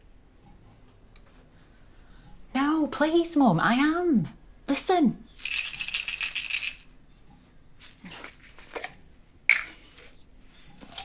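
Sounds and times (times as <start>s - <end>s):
pills rattling in a bottle: 5.3s - 6.9s, 9.7s - 11.0s.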